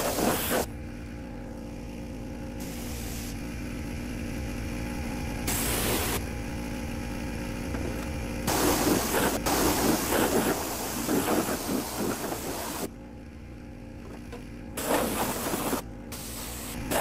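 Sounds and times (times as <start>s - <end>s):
pressure washer spraying metal: 0.0s - 0.7s, 5.5s - 6.2s, 8.5s - 12.9s, 14.8s - 17.0s.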